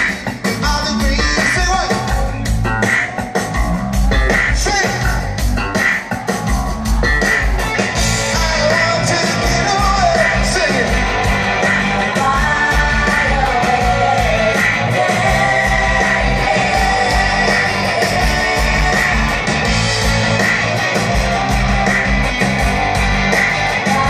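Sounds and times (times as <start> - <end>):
drums: 0.0 - 24.0
person singing: 8.2 - 11.0, 12.0 - 19.6, 23.7 - 24.0.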